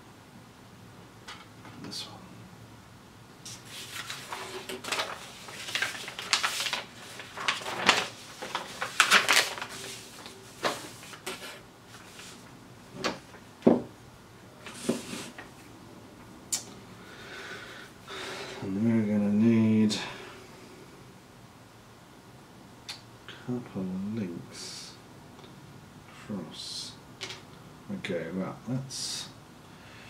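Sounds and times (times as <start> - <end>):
paper rustling: 3.5 - 13.4, 14.6 - 15.5.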